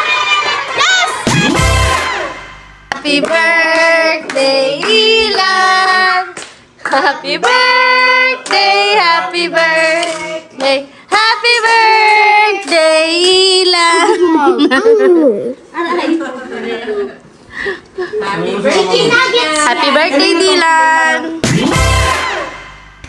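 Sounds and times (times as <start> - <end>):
hand clapping: 2.9 - 5.4, 6.4 - 7.6, 9.6 - 13.5.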